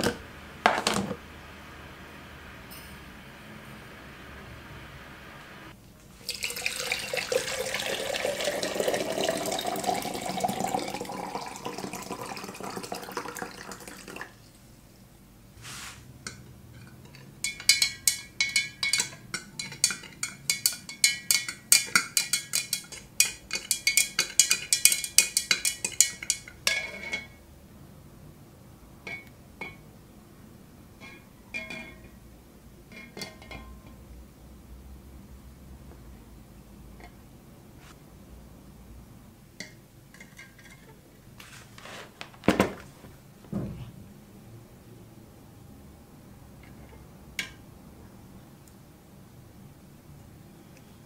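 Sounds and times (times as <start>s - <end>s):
liquid pouring into a glass: 6.2s - 14.4s.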